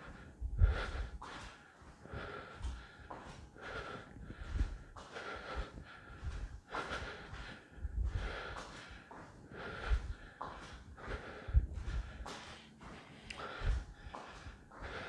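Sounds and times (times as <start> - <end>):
man breathing hard: 0.0 - 15.0.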